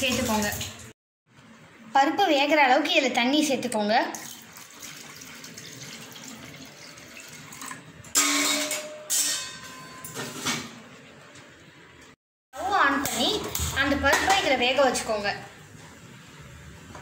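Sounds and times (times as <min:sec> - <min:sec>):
water pouring into metal pot: 0:04.2 - 0:07.9.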